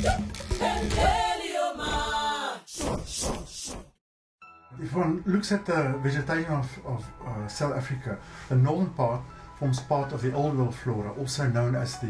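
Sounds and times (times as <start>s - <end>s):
music with singing voices: 0.0s - 2.6s.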